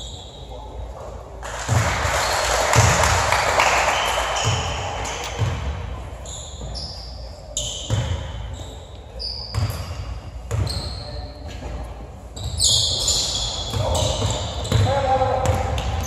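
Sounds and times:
sneakers squeaking on court: 4.4 - 11.6, 12.3 - 16.0.

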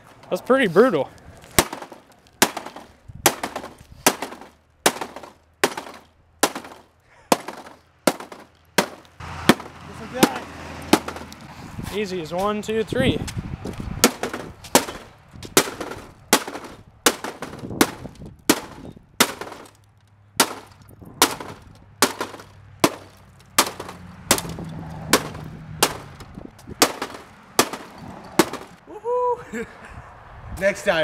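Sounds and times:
hammer striking tv screen: 1.6 - 11.4, 14.0 - 19.7, 20.4 - 28.8.

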